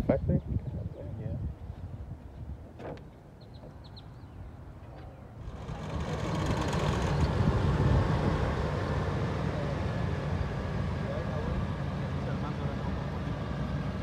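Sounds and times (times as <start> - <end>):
vehicle noise: 4.9 - 14.0.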